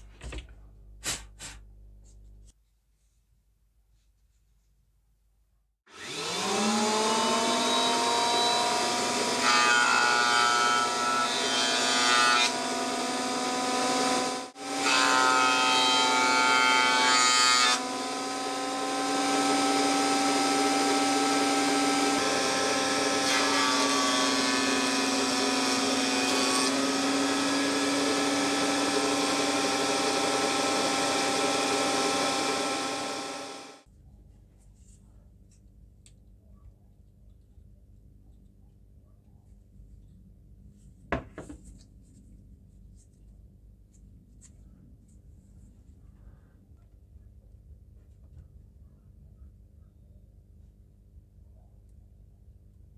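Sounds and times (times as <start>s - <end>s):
cutter block planing wood: 5.9s - 33.8s.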